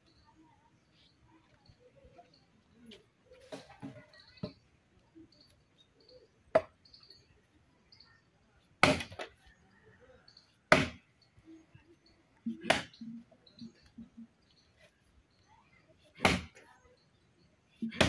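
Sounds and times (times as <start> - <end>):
axe chopping wood: 6.5 - 6.7, 8.8 - 9.3, 10.7 - 11.0, 12.5 - 12.9, 16.2 - 16.6.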